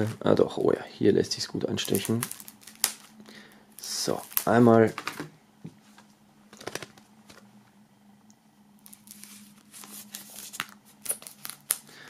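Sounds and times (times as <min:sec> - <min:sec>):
faint steady hum: 0:00.0 - 0:12.0
plastic foil scratching and crinkling: 0:01.7 - 0:05.0, 0:08.8 - 0:11.9.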